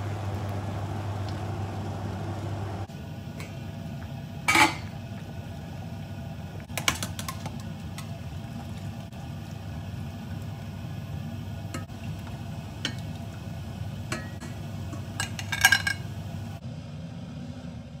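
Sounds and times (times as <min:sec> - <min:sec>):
steady low hum: 0:00.0 - 0:18.0
water dripping into pot: 0:11.7 - 0:13.4, 0:14.1 - 0:16.0
metal tongs clinking on pot: 0:14.1 - 0:16.1.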